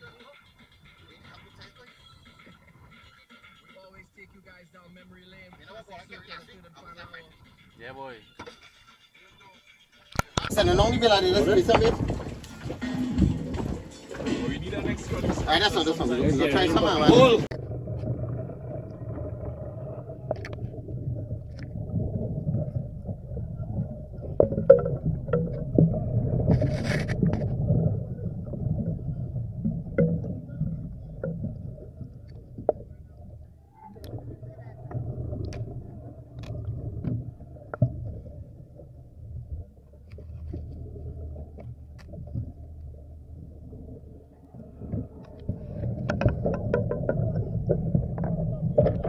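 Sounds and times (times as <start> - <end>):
underwater rumble and sloshing: 10.4 - 49.0
fish knocking on camera: 44.9 - 49.0.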